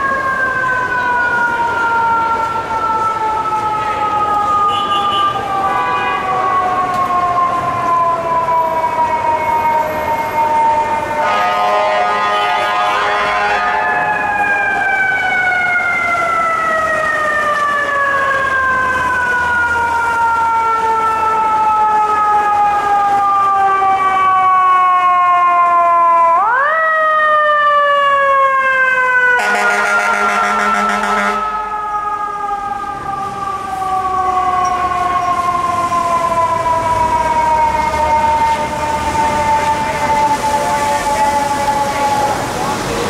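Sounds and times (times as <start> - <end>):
fire truck siren wailing: 0.0 - 43.0
air horn blast: 11.2 - 14.0, 29.4 - 31.6.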